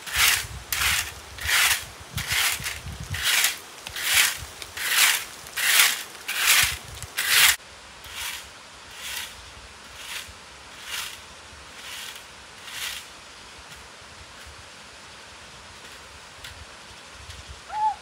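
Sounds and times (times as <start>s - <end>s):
hand scraping strokes: 0.0s - 13.1s.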